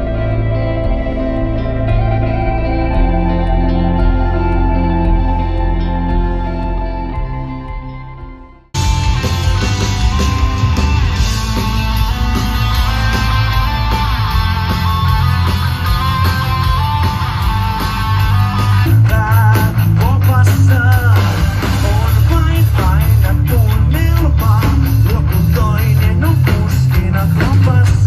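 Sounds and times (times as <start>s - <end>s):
wavering lead melody: 0.0s - 19.1s
guitar: 0.0s - 28.0s
heavy bass: 0.0s - 28.0s
live rock band playing: 0.0s - 28.0s.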